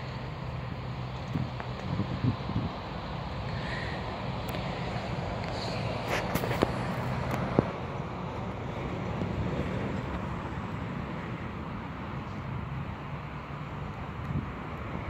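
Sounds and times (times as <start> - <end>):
wind on microphone: 1.3 - 2.8.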